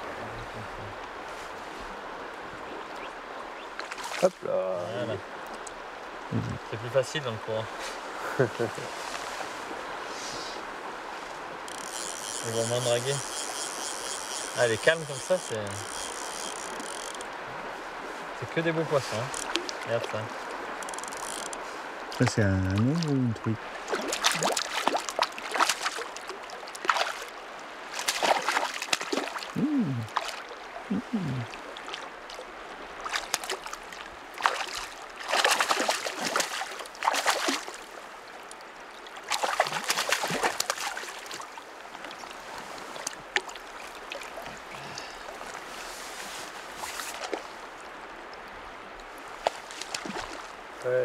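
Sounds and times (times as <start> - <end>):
river water running over riffle: 0.0 - 51.0
splashes in water: 3.8 - 4.4, 19.0 - 21.4, 22.1 - 45.6, 46.8 - 47.6, 49.3 - 50.6.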